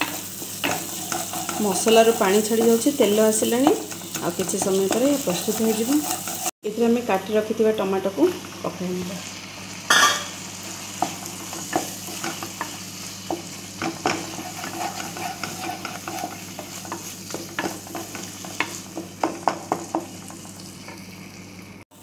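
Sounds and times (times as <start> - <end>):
spatula scraping and tapping pan: 0.0 - 6.5, 11.0 - 21.0
food sizzling in a pan: 0.0 - 22.0.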